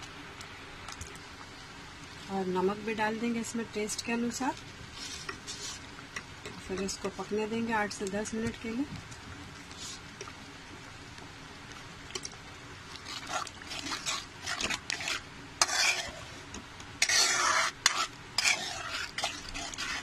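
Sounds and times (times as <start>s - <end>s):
metal spoon scraping a pan: 13.1s - 16.3s, 17.0s - 20.0s.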